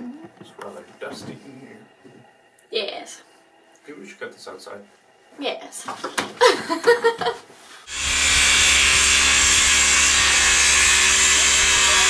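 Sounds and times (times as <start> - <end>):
power saw cutting wood: 7.9 - 12.0.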